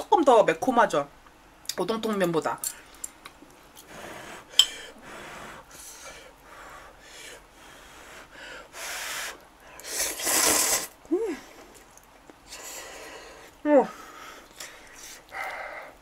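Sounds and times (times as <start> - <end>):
noodles being slurped: 9.8 - 11.0.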